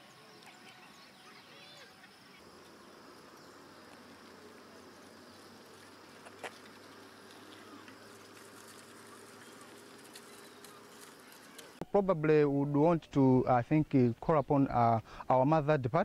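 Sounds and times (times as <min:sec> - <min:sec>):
insects buzzing: 0:00.0 - 0:11.8.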